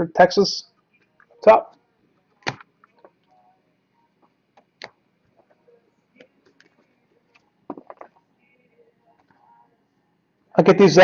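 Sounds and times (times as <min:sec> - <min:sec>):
cards tapping on wooden table: 0:07.7 - 0:08.1.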